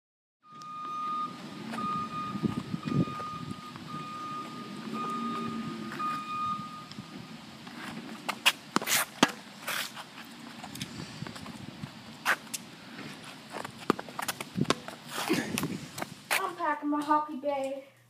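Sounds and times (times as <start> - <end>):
truck reversing alarm beeping: 0.4 - 7.6
low engine rumble: 0.5 - 8.8
tennis ball bouncing and struck: 8.3 - 9.8, 13.8 - 15.0.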